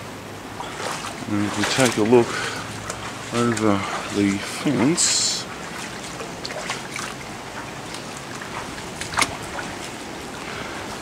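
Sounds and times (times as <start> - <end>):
floodwater flowing: 0.0 - 11.0.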